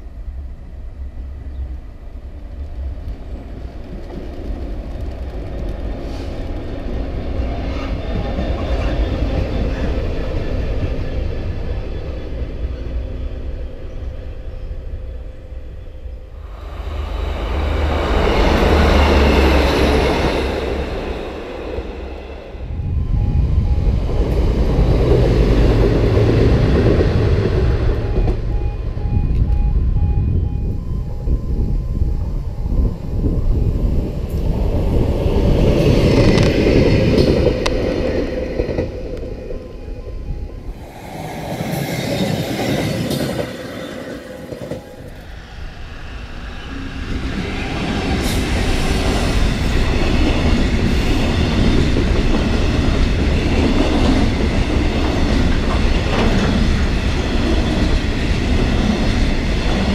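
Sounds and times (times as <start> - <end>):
diesel train passing: 0.0 - 59.9
level crossing alarm pulses: 21.8 - 25.1, 27.8 - 33.0, 39.3 - 41.6.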